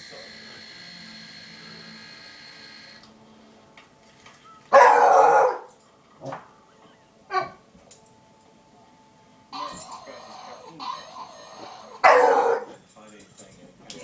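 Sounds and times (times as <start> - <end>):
dog barking: 4.7 - 6.4, 7.3 - 7.6, 12.0 - 12.8.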